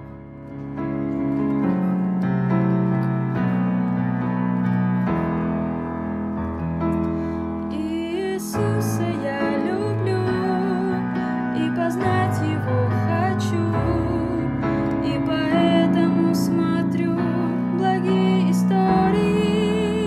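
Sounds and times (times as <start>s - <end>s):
gentle keyboard music: 0.0s - 20.0s.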